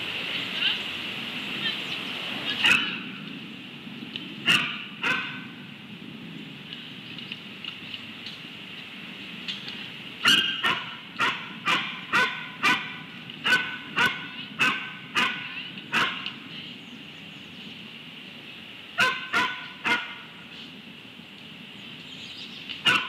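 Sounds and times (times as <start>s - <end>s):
dog barking: 2.6s - 3.0s, 4.5s - 5.5s, 10.3s - 16.2s, 19.0s - 20.2s.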